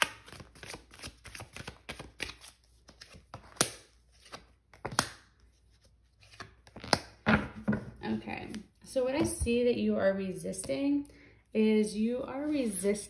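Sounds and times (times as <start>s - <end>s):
cards flicking and rustling: 0.0s - 7.2s.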